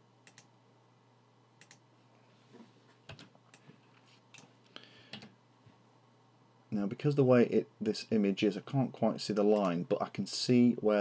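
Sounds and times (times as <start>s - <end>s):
computer mouse clicks: 0.2s - 0.5s, 1.6s - 1.8s.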